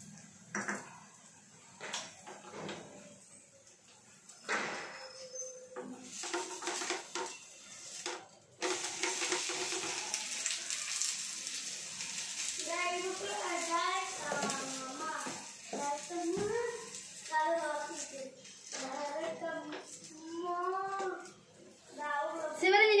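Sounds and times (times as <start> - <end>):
batter sizzling in oil: 0.0 - 22.9
wooden spatula scraping a pan: 5.6 - 11.0, 12.4 - 20.6.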